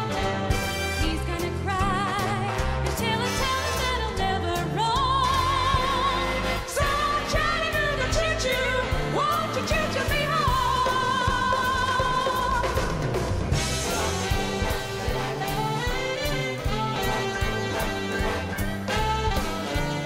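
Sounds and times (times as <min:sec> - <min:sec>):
band playing music: 0:00.0 - 0:20.0.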